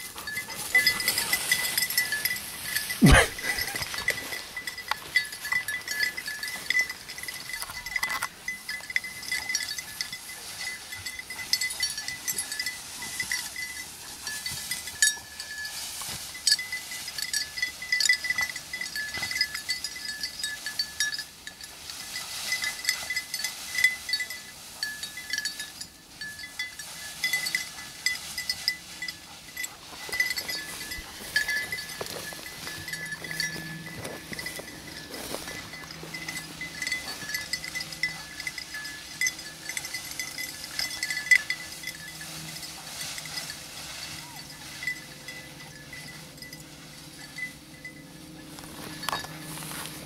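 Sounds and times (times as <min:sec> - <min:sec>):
collar bell jingling: 0:00.0 - 0:50.0
rustling of dry brush: 0:00.0 - 0:50.0.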